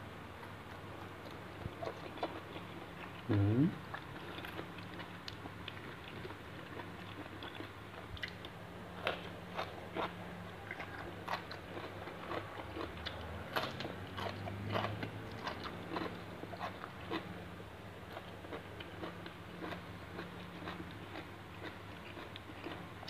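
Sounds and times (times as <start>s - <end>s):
steady low hum: 0.0s - 23.0s
person chewing crunchy food: 0.6s - 23.0s.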